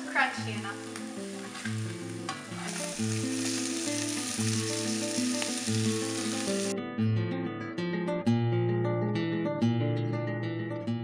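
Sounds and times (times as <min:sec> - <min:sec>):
meat sizzling in a frying pan: 0:00.0 - 0:06.7
acoustic guitar music: 0:00.0 - 0:11.0
spatula stirring in a pan: 0:00.8 - 0:06.4.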